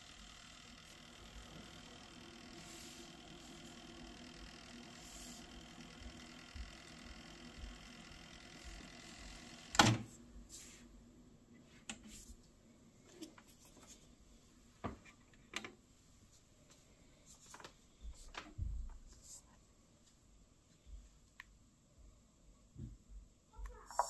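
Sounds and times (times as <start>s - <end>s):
cassette tape whirring: 0.0s - 10.1s
cassette mechanism clunk: 9.8s - 10.0s.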